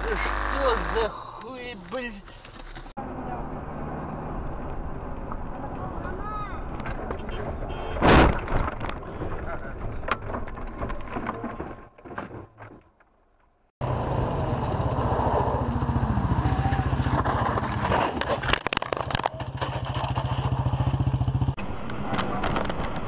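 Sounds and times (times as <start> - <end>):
vehicle engine humming: 0.0 - 8.0, 13.8 - 18.3
sharp knocks and clatter: 8.1 - 13.5, 17.0 - 21.3.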